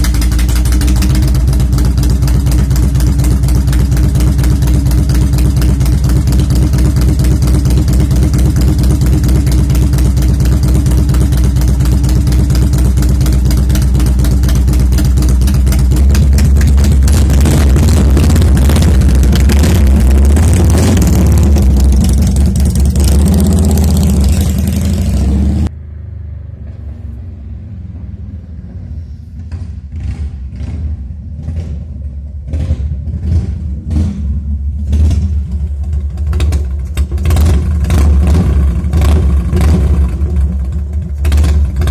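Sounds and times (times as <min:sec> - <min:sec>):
motorcycle throttle blips: 0:00.0 - 0:25.7
motorcycle engine: 0:00.0 - 0:41.9.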